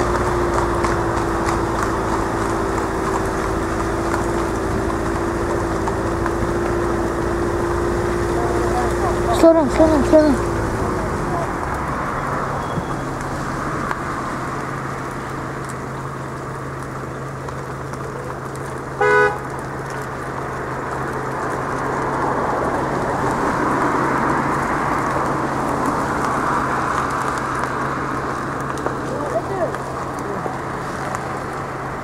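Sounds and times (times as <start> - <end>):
car engine and road noise: 0.0 - 32.0
car horn toot: 19.0 - 19.5.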